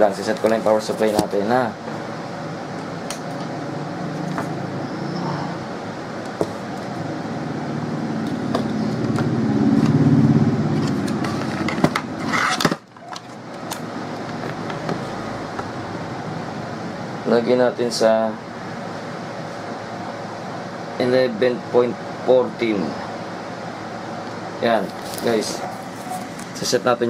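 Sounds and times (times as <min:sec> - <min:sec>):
passing vehicle engine hum: 0:03.5 - 0:06.2, 0:07.0 - 0:11.7.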